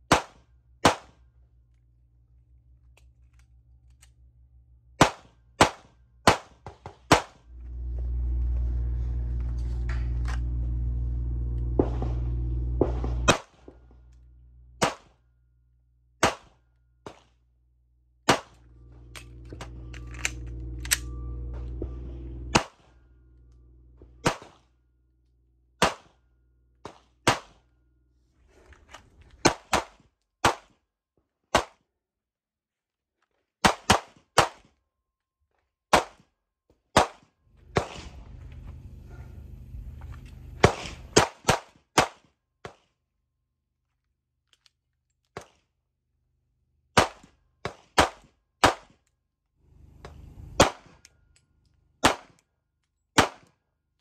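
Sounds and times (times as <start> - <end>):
pistol shots: 0.1 - 1.2, 11.7 - 13.7, 14.8 - 15.2, 16.2 - 17.2, 25.8 - 26.2, 26.9 - 27.6, 29.4 - 30.7, 47.0 - 49.0, 50.6 - 51.0, 52.0 - 52.4, 53.2 - 53.5.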